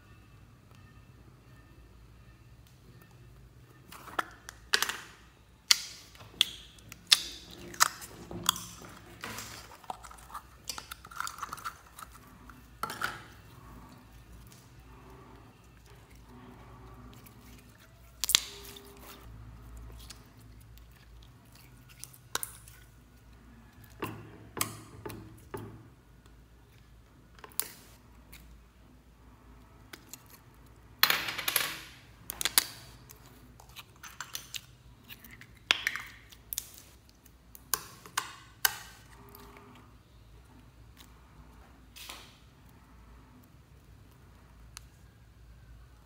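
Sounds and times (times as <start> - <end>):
slime crackling and popping: 17.1 - 19.2, 32.3 - 39.0.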